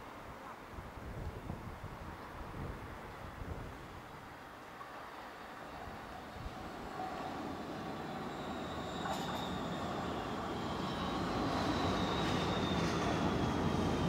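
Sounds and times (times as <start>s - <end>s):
metro train running on rails: 4.7s - 14.0s.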